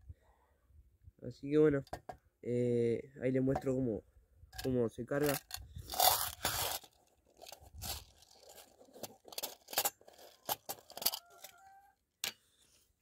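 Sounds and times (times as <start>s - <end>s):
metal tin clicking and rattling: 4.6s - 11.6s.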